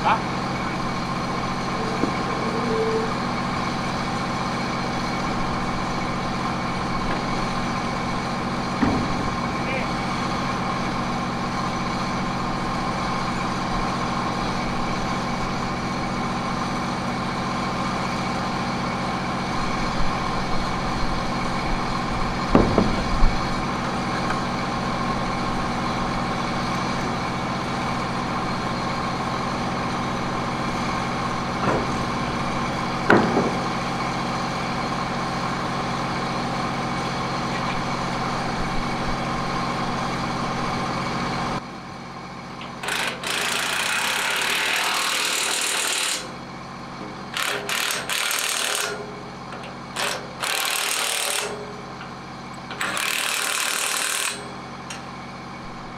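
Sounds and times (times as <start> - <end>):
engine idling: 0.0 - 55.9
sharp metallic knocks: 8.7 - 9.4, 22.5 - 23.1, 33.0 - 33.7.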